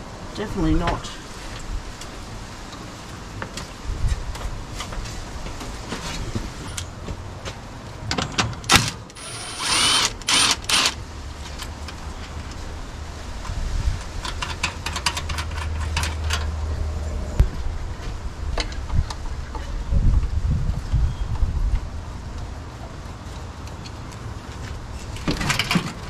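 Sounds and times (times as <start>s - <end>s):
cordless drill spinning: 9.2s - 11.0s.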